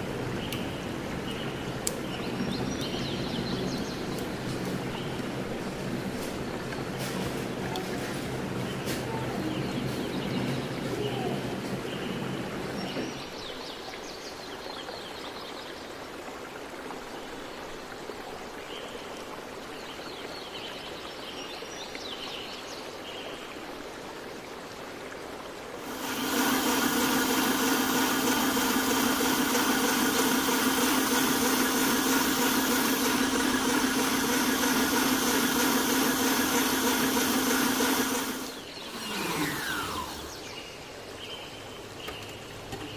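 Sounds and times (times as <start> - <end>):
electric mixer whining: 25.8 - 40.5.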